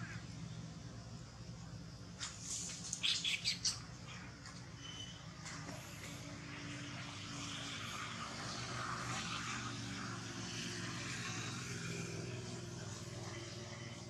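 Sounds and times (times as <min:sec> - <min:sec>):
background hiss: 0:00.0 - 0:04.8
distant engine drone: 0:00.0 - 0:14.0.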